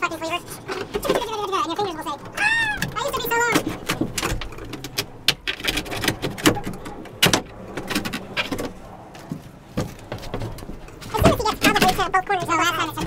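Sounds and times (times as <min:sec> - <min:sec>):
sunroof frame knocking and rattling: 0:02.8 - 0:13.0.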